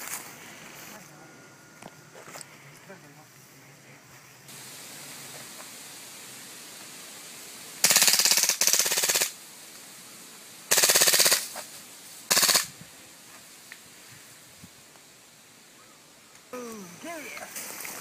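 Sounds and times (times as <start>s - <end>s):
airsoft gun full-auto bursts: 7.8s - 9.4s, 10.7s - 11.5s, 12.3s - 12.7s.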